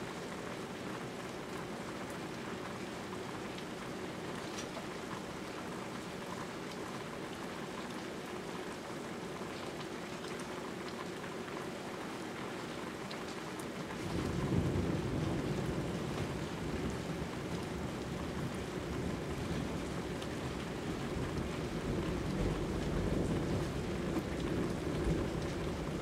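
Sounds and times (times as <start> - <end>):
steady rain falling: 0.0 - 26.0
low rumble of thunder: 13.9 - 26.0.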